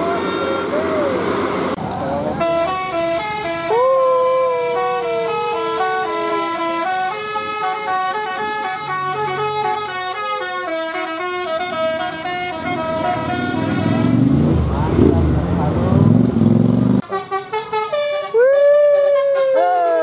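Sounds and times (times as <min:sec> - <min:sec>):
musical bus horn melody: 0:02.4 - 0:15.1, 0:17.0 - 0:20.0.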